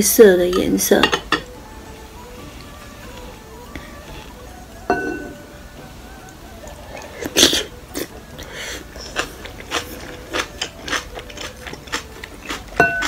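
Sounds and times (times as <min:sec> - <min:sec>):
wet chewing and smacking: 0:06.2 - 0:13.0.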